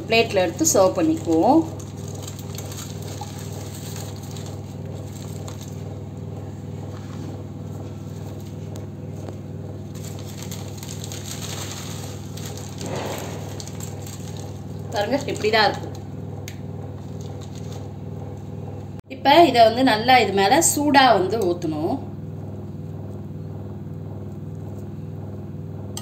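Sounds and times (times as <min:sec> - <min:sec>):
electric motor hum pulsing: 0:00.0 - 0:26.0
plastic packet rustling: 0:00.8 - 0:05.8, 0:09.9 - 0:16.0, 0:17.0 - 0:17.9.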